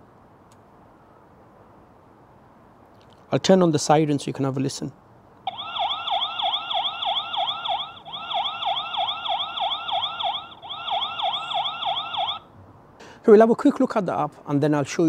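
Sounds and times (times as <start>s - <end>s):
security camera siren wailing: 5.5s - 12.5s.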